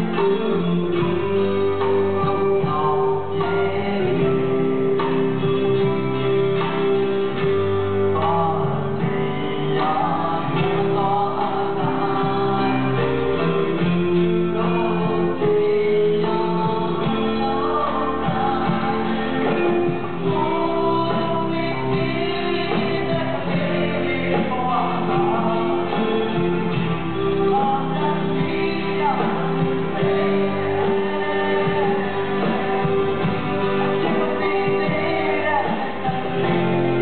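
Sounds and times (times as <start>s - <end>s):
acoustic guitar strumming: 0.0s - 37.0s
bass line: 0.0s - 37.0s
man singing: 0.0s - 37.0s.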